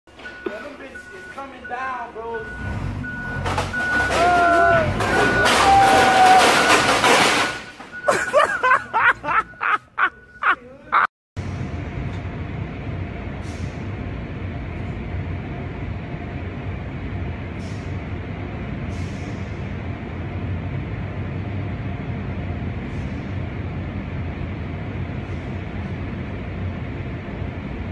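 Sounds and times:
low machinery rumble: 11.4 - 27.9.

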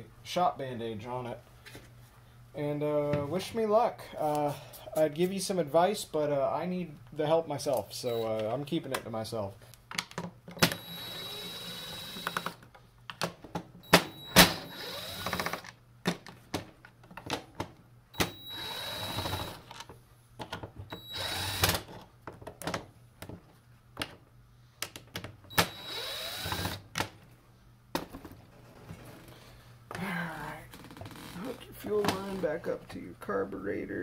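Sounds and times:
power driver whirring: 10.6 - 12.6, 13.9 - 15.6, 18.2 - 19.7, 20.9 - 21.8, 25.5 - 26.8.

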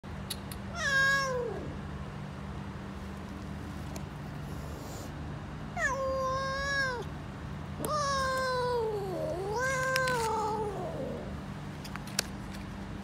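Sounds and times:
steady low hum: 0.0 - 13.0
cat meowing: 0.7 - 1.8, 5.8 - 7.1, 7.8 - 11.3.

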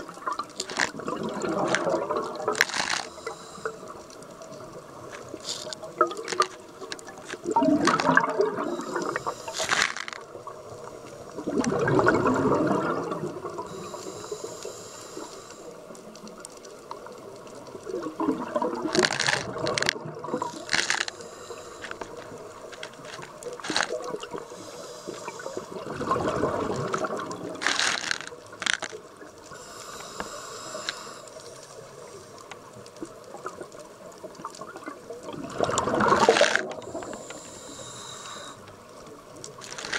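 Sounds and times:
exhaled bubbles gurgling: 0.0 - 14.8, 15.8 - 31.2, 31.8 - 39.9
regulator inhalation hiss: 2.5 - 4.0, 8.6 - 10.2, 13.7 - 15.9, 20.4 - 22.9, 23.6 - 25.7, 29.5 - 31.8, 36.8 - 38.7.

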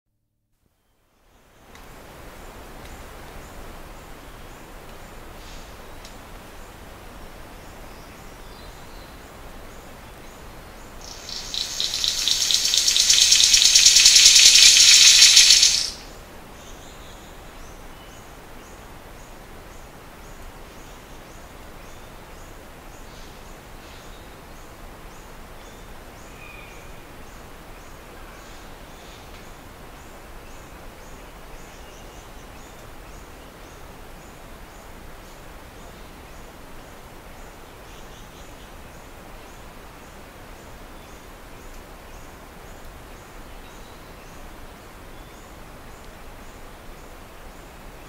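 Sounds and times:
faint ticking: 11.0 - 16.0
bird rattling call: 11.0 - 16.1.

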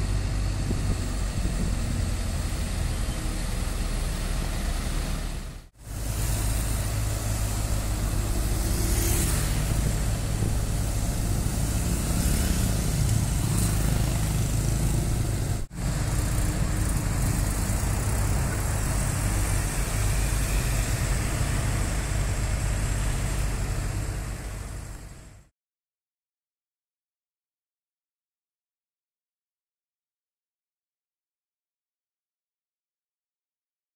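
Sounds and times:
street traffic: 0.0 - 25.5
truck engine running: 0.0 - 25.5.

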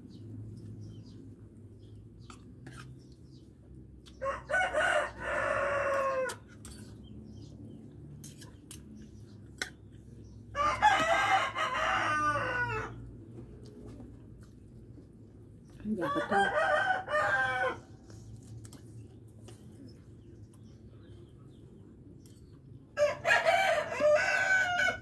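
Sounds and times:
rooster crowing: 4.2 - 6.4, 10.6 - 13.0, 16.1 - 17.9, 23.0 - 25.0.

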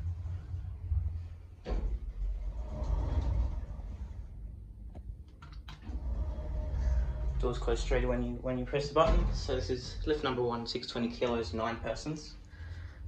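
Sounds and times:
lift doors sliding open: 1.6 - 4.5, 5.6 - 10.3
lift car rumbling: 2.0 - 4.5, 5.7 - 10.4.

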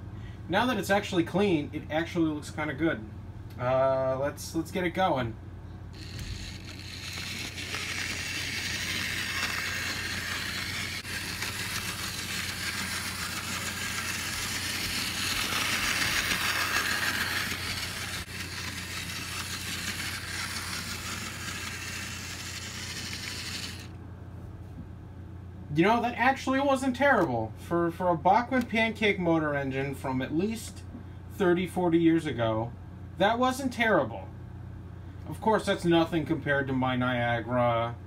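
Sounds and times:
model train motor whir: 5.9 - 24.0
model train wheels on rails: 6.0 - 24.0.

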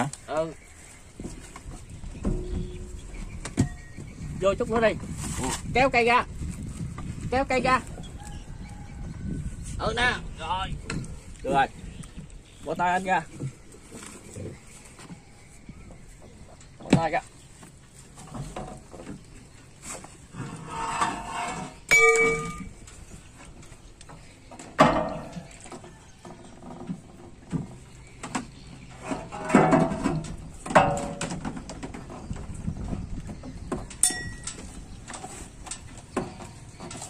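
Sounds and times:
steel bracket clanking against metal: 20.7 - 23.1, 24.6 - 25.5, 29.0 - 31.8, 33.9 - 37.0.

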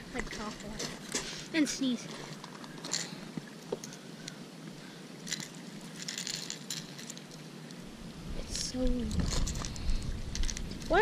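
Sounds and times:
background hiss: 0.0 - 11.0
fishing hooks clicking and rattling: 2.3 - 3.2, 5.2 - 7.4, 9.0 - 11.0.

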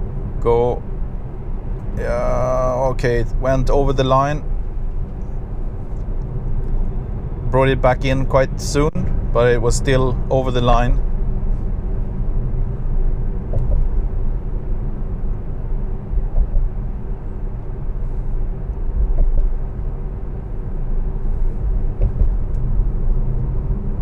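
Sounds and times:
road and tyre rumble in car cabin: 0.0 - 24.0.

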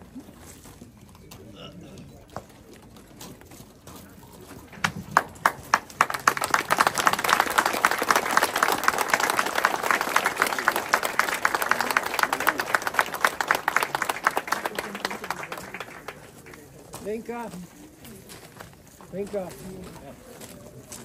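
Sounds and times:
crowd applauding: 4.7 - 17.5.

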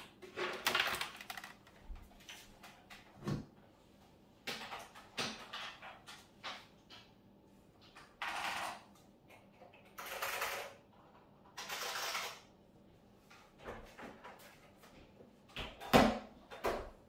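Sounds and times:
mechanical keyboard typing: 0.6 - 1.8, 8.2 - 8.9, 9.8 - 10.8, 11.5 - 12.5.

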